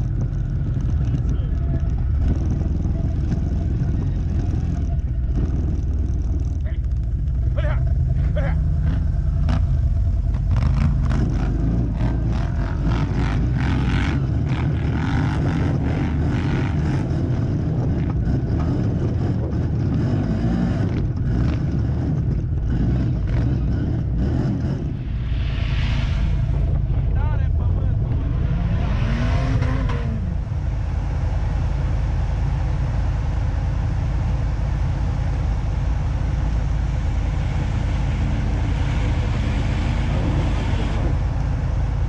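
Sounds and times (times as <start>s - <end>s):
quad bike engine running: 0.0s - 24.8s.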